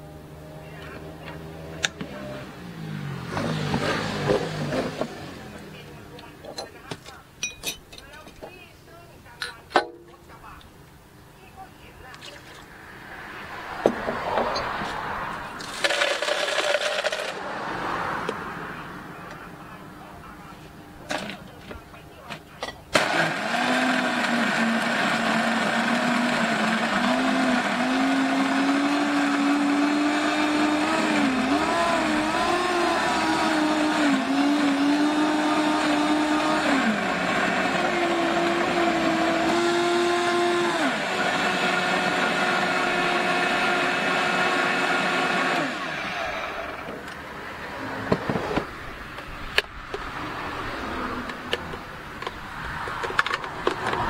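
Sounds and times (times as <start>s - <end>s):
blender crushing ice: 15.6s - 17.6s, 22.9s - 46.9s.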